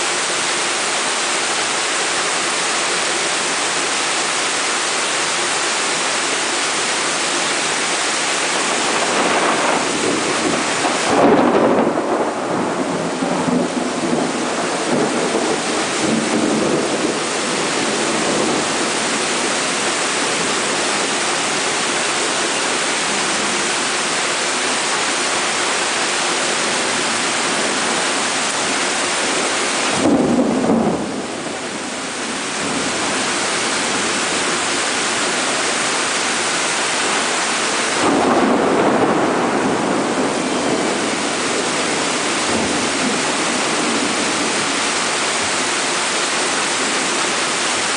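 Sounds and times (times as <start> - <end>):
heavy rain pouring: 0.0 - 47.9
thunder rumbling: 8.5 - 21.9, 25.5 - 35.8, 37.0 - 45.7
thunder clap: 8.6 - 19.6, 29.9 - 32.0, 37.9 - 44.6.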